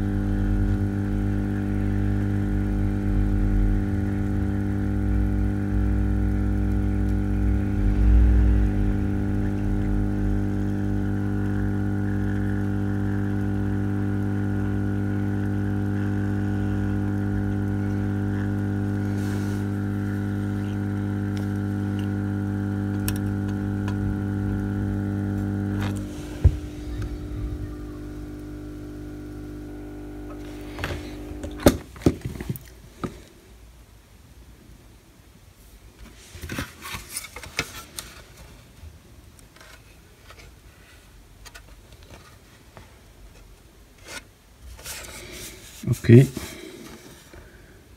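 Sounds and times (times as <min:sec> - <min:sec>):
hot air station humming: 0:00.0 - 0:31.9.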